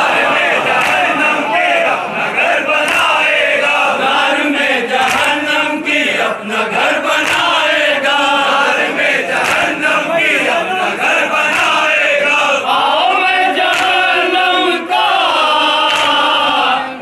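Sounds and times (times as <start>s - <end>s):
crowd of men chanting: 0.0s - 17.0s.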